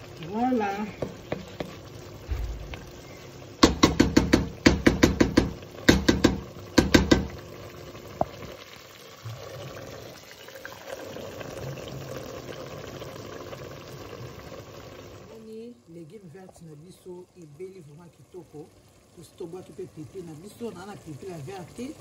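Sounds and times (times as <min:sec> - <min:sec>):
simmering greens hissing: 0:00.0 - 0:22.0
wooden spatula knocking on pot: 0:00.9 - 0:02.9, 0:03.6 - 0:07.4.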